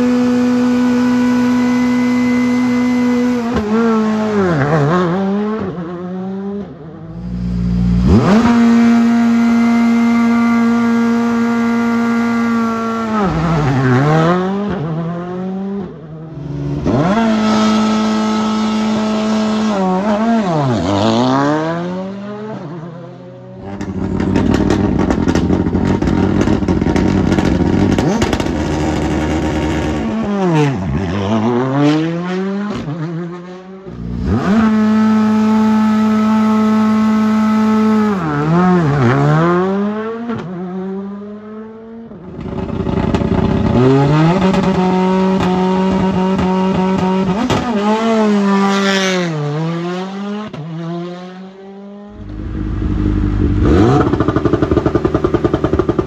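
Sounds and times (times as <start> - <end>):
rally car engines revving: 0.0 - 56.0
rapid engine pops: 23.7 - 30.0, 52.2 - 56.0.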